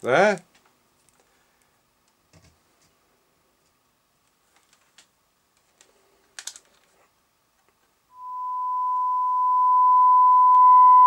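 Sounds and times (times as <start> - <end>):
pure test tone: 8.1 - 11.0.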